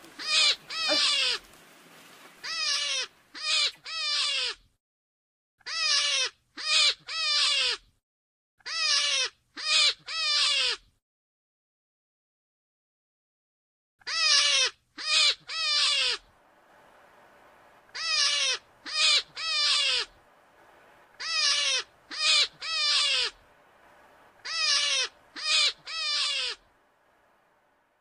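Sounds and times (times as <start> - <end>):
animal calls falling in pitch: 0.0 - 4.5, 16.8 - 26.7.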